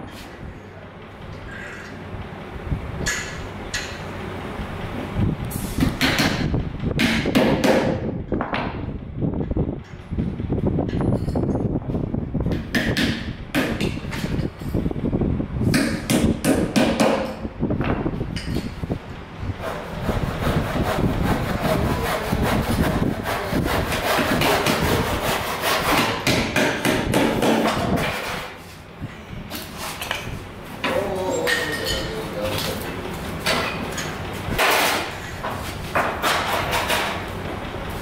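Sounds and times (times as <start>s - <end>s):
hammer striking nails into wood: 5.8s - 8.0s, 12.5s - 14.0s, 15.7s - 17.4s, 25.9s - 28.2s.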